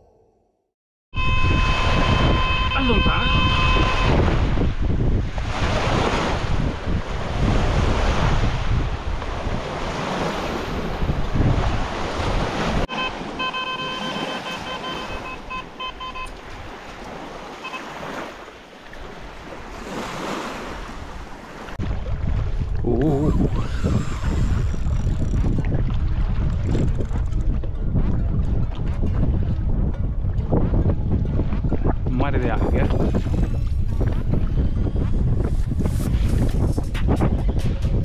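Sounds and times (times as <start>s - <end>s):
short electronic beeps: 1.2s - 4.3s, 12.9s - 16.4s, 17.6s - 18.0s
wind buffeting microphone: 1.2s - 12.9s, 19.1s - 38.0s
waves: 1.2s - 38.0s.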